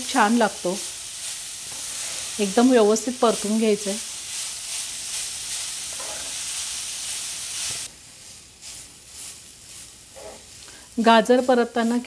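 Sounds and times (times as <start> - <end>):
carrot sizzling in hot fat: 0.0 - 12.0
spatula stirring: 3.2 - 12.0.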